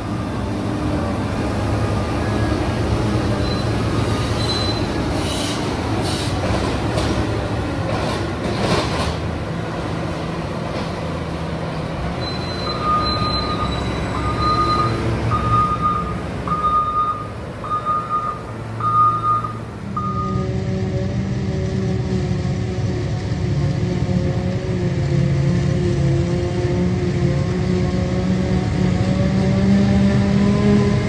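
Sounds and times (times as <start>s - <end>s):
diesel engine rumble: 0.0s - 31.0s
reversing alarm beeping: 3.4s - 4.9s, 12.2s - 20.5s.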